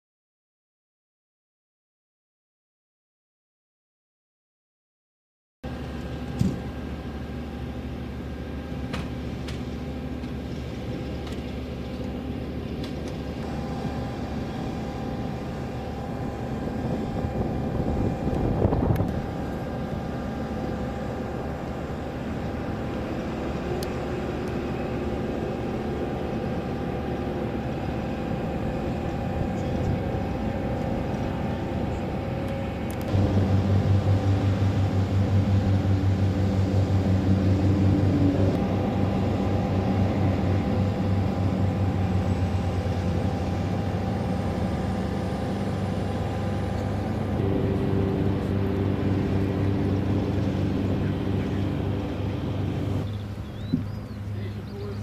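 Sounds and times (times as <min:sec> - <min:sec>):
jet turbine whine: 0:05.6 - 0:55.0
strong low hum: 0:05.7 - 0:55.0
broad rushing noise: 0:13.2 - 0:53.1.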